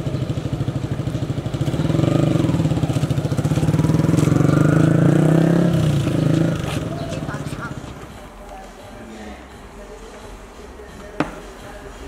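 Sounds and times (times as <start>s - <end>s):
motorcycle engine running: 0.0s - 8.3s.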